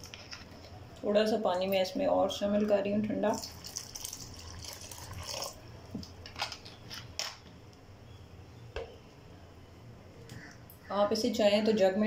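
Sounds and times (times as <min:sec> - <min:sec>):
water trickling into a bowl: 0:03.3 - 0:05.6.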